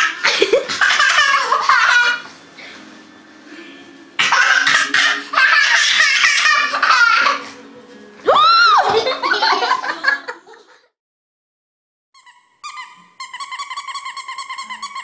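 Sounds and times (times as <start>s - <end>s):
toddler laughing: 0.0s - 2.3s, 4.2s - 7.6s.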